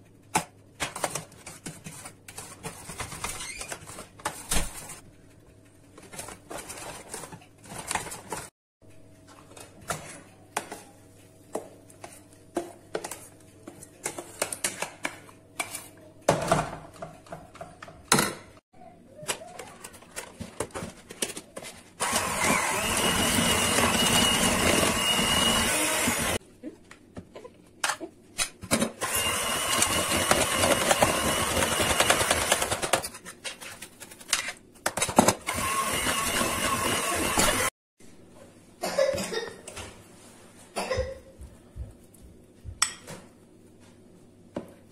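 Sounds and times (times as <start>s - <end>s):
electric hand mixer whining: 22.0s - 26.4s, 29.0s - 33.0s, 35.4s - 37.7s.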